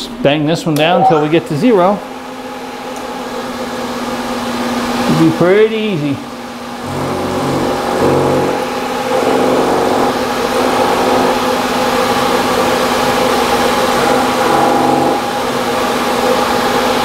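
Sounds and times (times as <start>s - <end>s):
milling machine cutting metal: 6.8s - 17.0s.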